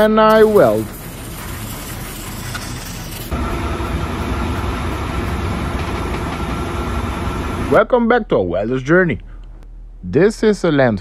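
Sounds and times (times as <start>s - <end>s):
welding arc crackling and hissing: 0.0s - 3.4s.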